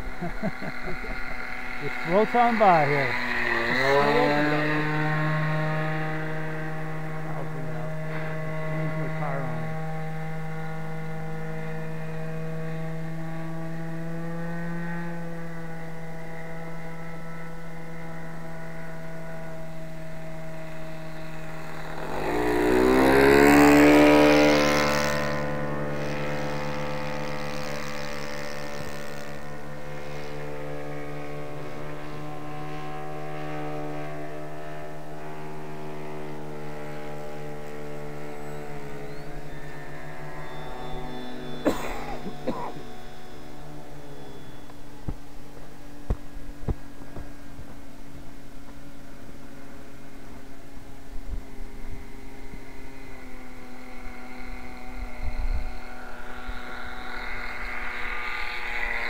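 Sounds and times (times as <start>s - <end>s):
model airplane motor droning: 0.0s - 59.0s.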